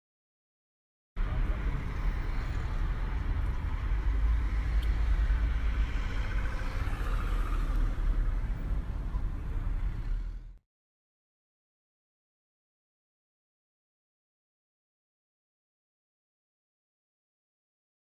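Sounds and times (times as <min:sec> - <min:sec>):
road and engine rumble: 0:01.2 - 0:10.6.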